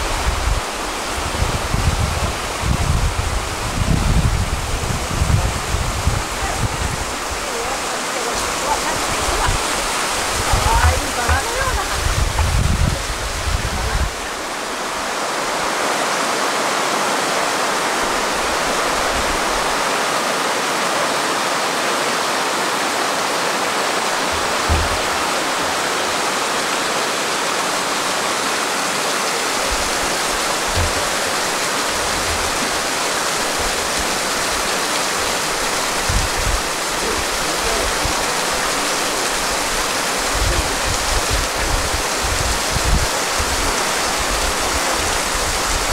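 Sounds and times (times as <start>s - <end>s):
wind bumps on microphone: 0.0s - 7.4s, 8.9s - 14.4s, 24.2s - 25.9s, 29.6s - 32.9s, 35.9s - 37.2s, 40.3s - 45.9s
river water rushing: 0.0s - 45.9s.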